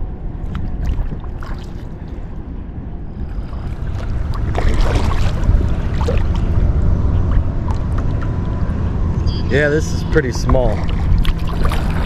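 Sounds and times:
water lapping at hull: 0.0s - 9.1s, 10.2s - 12.0s
wind rumbling on microphone: 0.0s - 9.4s, 10.0s - 12.0s
kayak paddle strokes splashing: 0.4s - 2.2s, 3.2s - 8.6s, 10.4s - 12.0s.

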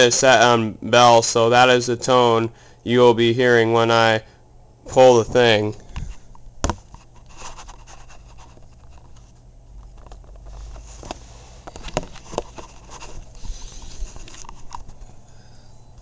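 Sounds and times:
low steady hum: 0.0s - 16.0s
handling rustling: 5.3s - 15.2s.

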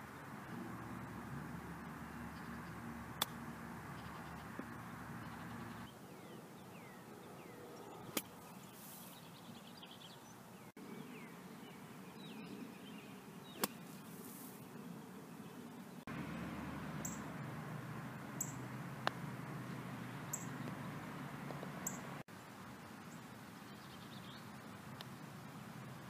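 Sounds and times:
birds chirping faintly: 0.8s - 21.2s.

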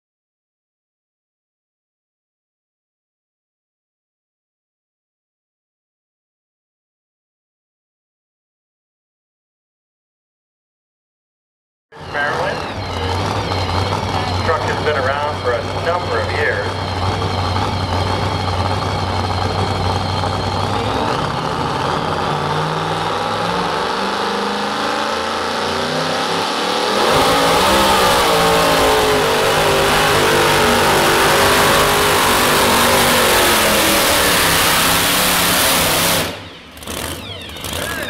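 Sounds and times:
truck engine revving: 12.0s - 38.0s.

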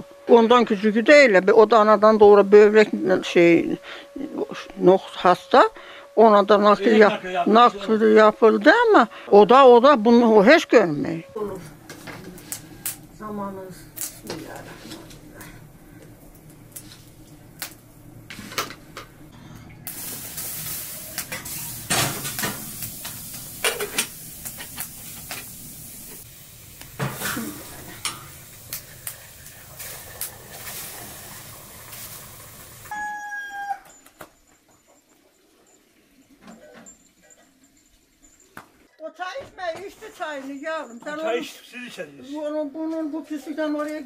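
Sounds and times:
water poured from kettle hissing: 19.9s - 32.9s.

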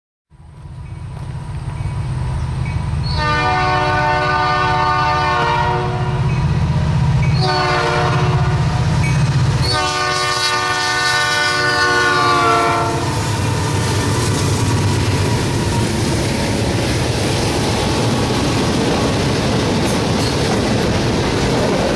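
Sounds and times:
low rumble of train: 0.3s - 21.9s
locomotive air horn blasts: 3.0s - 6.3s, 7.3s - 8.9s, 9.6s - 13.9s
train wheel clatter: 13.1s - 21.9s.

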